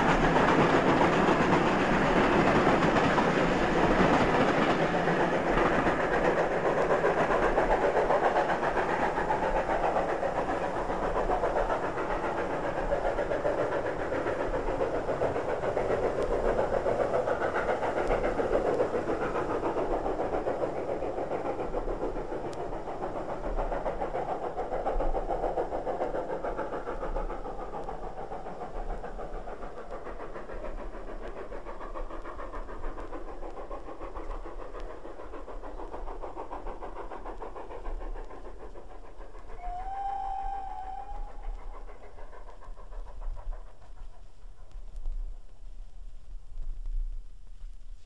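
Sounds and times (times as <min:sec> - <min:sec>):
steam locomotive exhaust and train: 0:00.0 - 0:48.0
steam whistle: 0:39.6 - 0:41.4.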